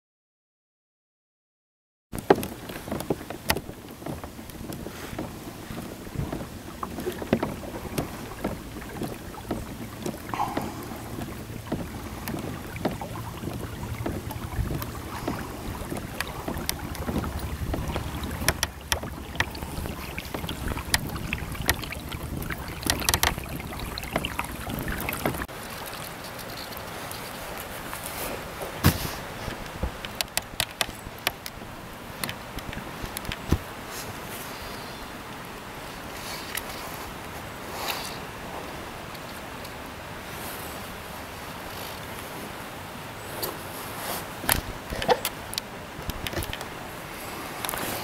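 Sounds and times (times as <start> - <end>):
small splashes at kayak hull: 2.2 - 26.3
wind rumble on microphone: 2.2 - 34.3, 38.3 - 48.0.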